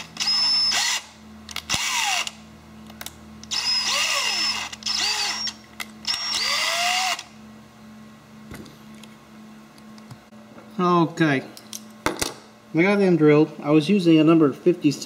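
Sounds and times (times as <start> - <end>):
drill motor whine: 0.0 - 2.4, 3.4 - 7.4
low steady hum: 0.0 - 15.0.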